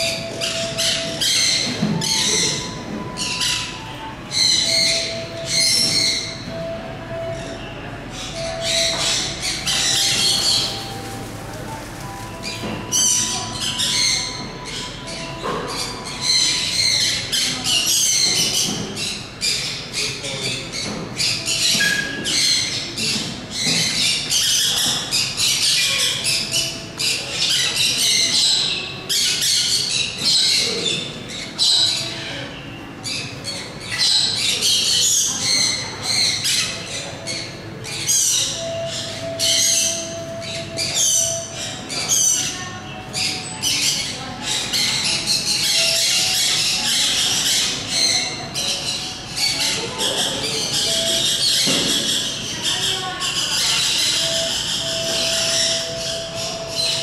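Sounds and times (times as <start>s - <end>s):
birds chattering and squawking: 0.0s - 57.0s.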